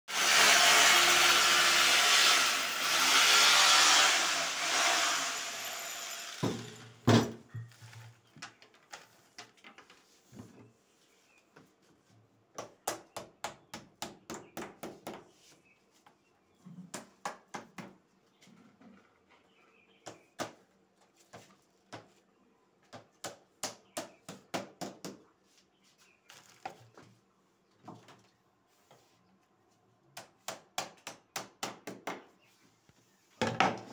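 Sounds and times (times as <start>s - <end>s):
power tool running: 0.1s - 7.0s.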